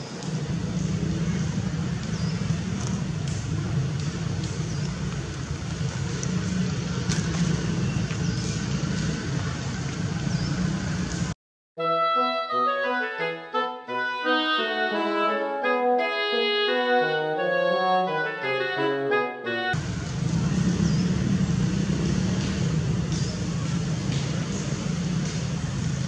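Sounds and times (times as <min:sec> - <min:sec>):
low outdoor rumble: 0:00.0 - 0:11.4, 0:19.8 - 0:26.0.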